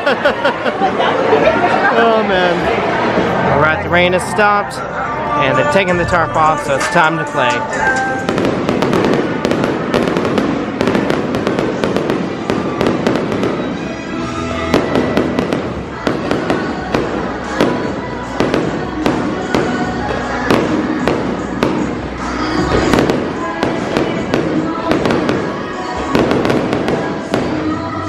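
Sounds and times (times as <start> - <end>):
music playing: 0.0 - 28.0
fireworks bangs and pops: 8.0 - 13.9, 14.7 - 22.0, 22.6 - 27.6.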